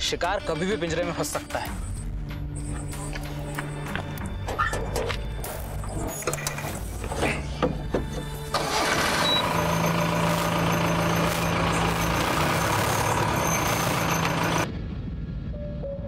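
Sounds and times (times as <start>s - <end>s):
loud engine running: 8.4s - 14.7s.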